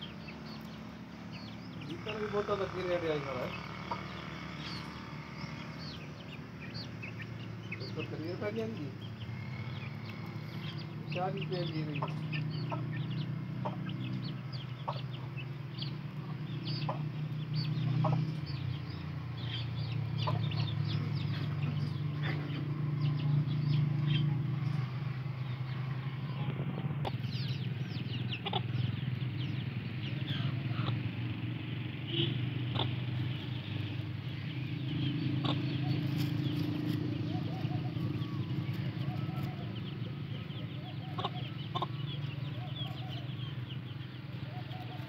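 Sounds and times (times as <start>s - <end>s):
chicks peeping: 0.0s - 45.0s.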